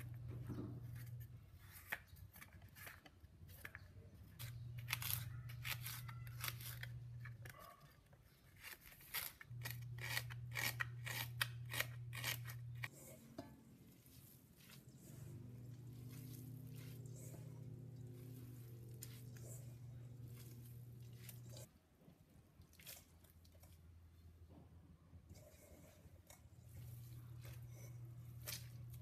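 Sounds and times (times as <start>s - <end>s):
low steady hum: 9.3s - 29.0s.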